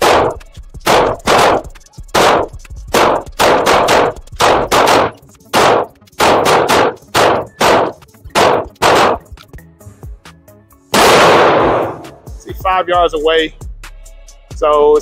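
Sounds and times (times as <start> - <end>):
pistol shots echoing indoors: 0.0 - 9.3, 10.9 - 12.2.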